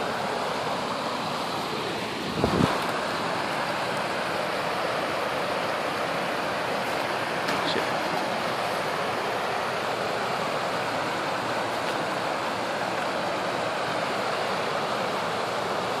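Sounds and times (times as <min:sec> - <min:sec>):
creek water rushing over stones: 0:00.0 - 0:16.0.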